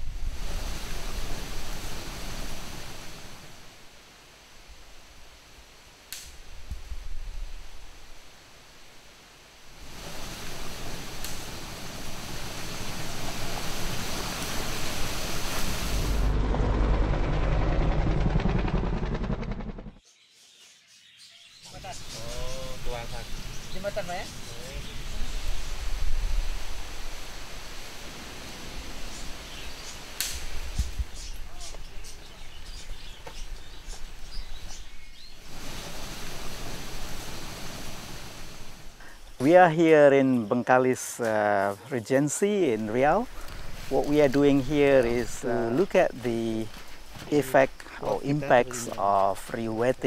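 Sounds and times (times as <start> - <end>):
steady background hiss: 0.0 - 16.2, 21.0 - 50.0
steady rushing noise: 9.7 - 20.0
helicopter rotor beat: 15.9 - 20.0.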